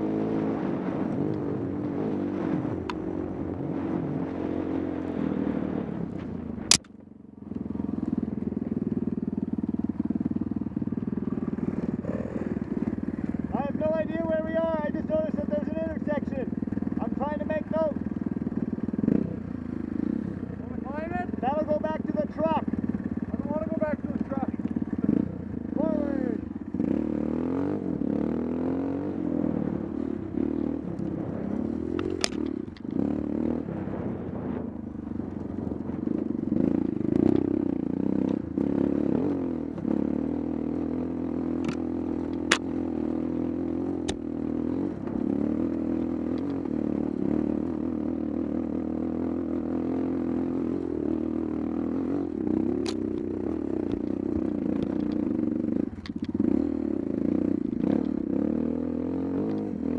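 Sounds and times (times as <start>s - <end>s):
dirt bike engine running: 0.0s - 59.9s
sharp clicks and knocks: 6.7s - 7.0s, 31.9s - 33.0s, 41.6s - 42.7s, 56.0s - 56.4s.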